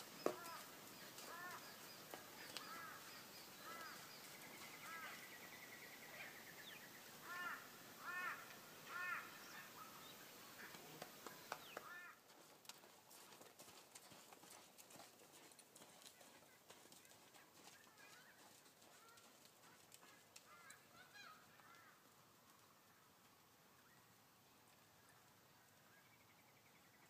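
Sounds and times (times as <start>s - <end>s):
crow-like bird calls: 0.2s - 1.8s, 2.5s - 5.4s, 7.2s - 12.2s, 20.0s - 22.0s.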